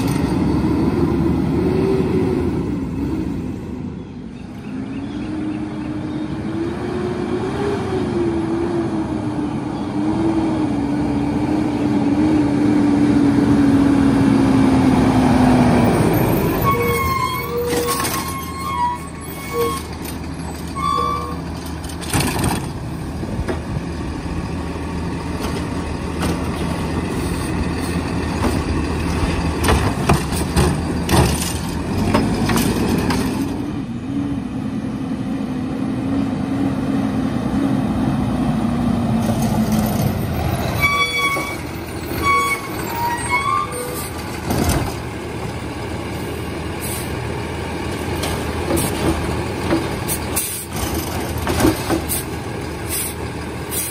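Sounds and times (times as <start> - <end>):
garbage truck diesel engine running: 11.1 - 34.6, 37.9 - 53.9
short high squeaks: 16.5 - 21.5, 40.6 - 44.3.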